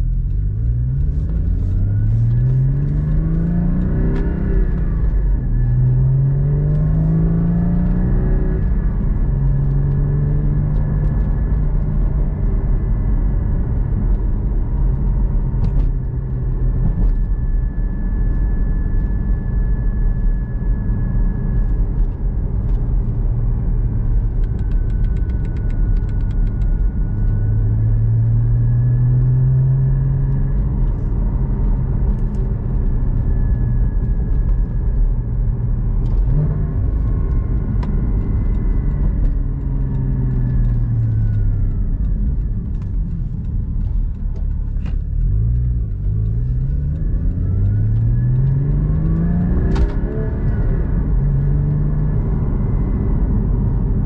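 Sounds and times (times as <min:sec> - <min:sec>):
engine revs through gear changes: 0:00.0 - 0:12.2, 0:24.1 - 0:54.0
car engine accelerating: 0:00.0 - 0:54.0.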